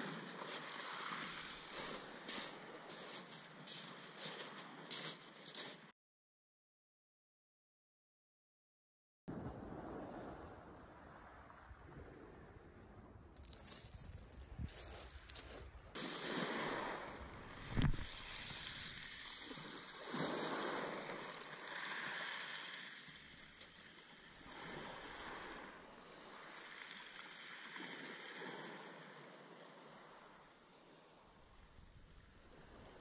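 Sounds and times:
small waves washing on shingle: 0:00.0 - 0:05.8, 0:13.4 - 0:25.6.

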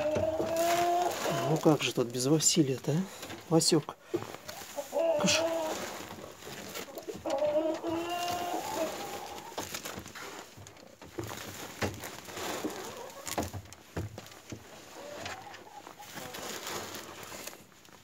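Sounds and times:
plastic sack rustling: 0:00.0 - 0:18.0
hen calling: 0:04.6 - 0:06.0, 0:06.9 - 0:09.5.

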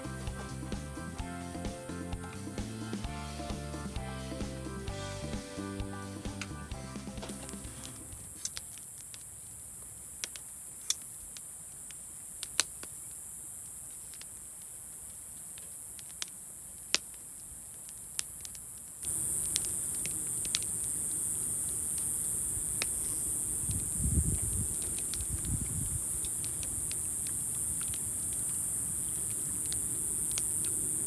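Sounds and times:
night insects chorus: 0:19.0 - 0:31.0.

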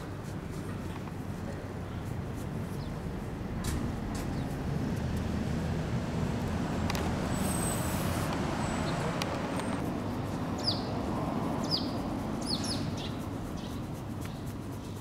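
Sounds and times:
street traffic hum: 0:00.0 - 0:15.0
bird chirping: 0:07.3 - 0:09.8, 0:10.6 - 0:11.0, 0:11.6 - 0:15.0.

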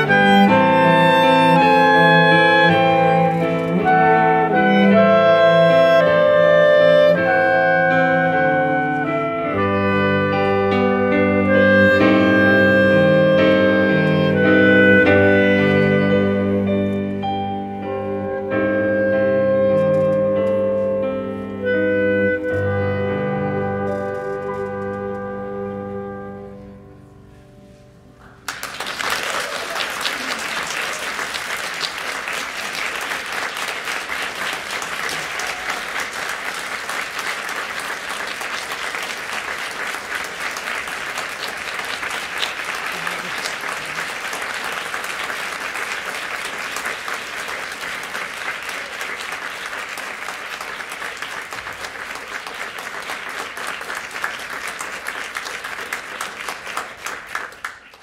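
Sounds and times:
audience applauding: 0:28.2 - 0:58.0.

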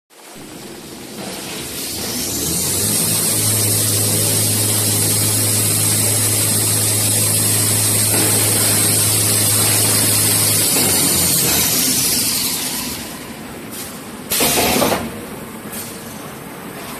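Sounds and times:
low machine hum: 0:00.3 - 0:14.3
high machine whine: 0:00.4 - 0:14.8
machine mechanical rush: 0:01.2 - 0:13.7.

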